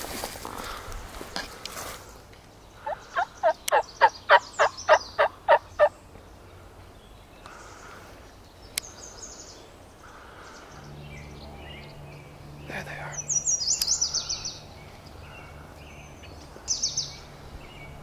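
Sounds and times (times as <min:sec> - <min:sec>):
turkey yelps: 0:03.2 - 0:05.6.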